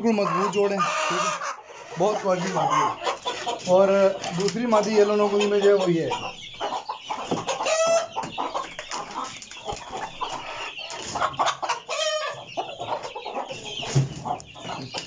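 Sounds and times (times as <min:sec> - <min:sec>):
chicken squawks: 0:00.0 - 0:15.0
chickens clucking: 0:00.0 - 0:15.0.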